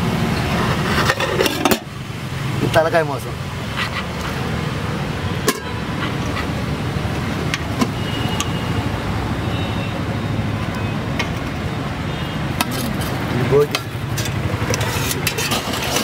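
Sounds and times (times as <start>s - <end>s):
street traffic rumble: 0.0s - 16.0s
metal ladle striking steel pot: 5.4s - 5.7s
car horn toot: 7.8s - 8.8s.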